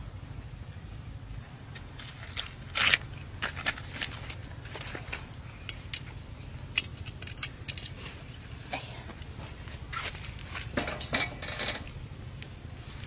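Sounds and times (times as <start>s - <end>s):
corn husk tearing: 2.0s - 4.3s.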